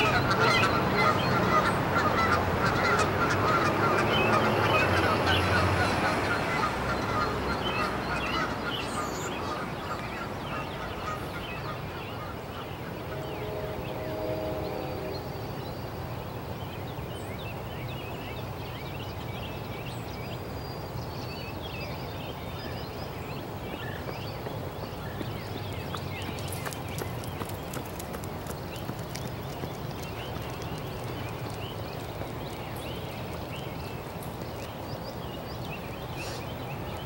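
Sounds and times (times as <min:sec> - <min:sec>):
drawn-out honk-like tone: 0:13.1 - 0:15.4
small birds chirping: 0:21.0 - 0:37.0.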